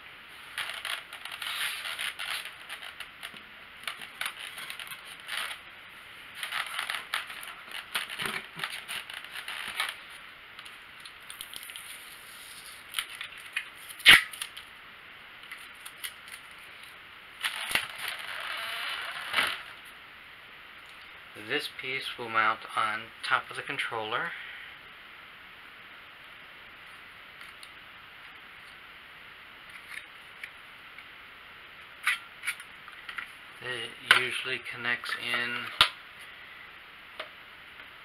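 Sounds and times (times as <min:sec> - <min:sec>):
styrofoam scraping and crunching: 0:00.5 - 0:05.6, 0:06.4 - 0:10.2.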